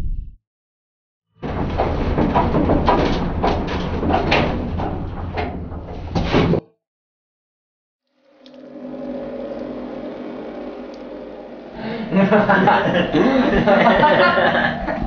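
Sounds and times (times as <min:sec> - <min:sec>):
metal cargo bed rattling: 0:01.4 - 0:06.4
truck engine drone: 0:08.1 - 0:15.0.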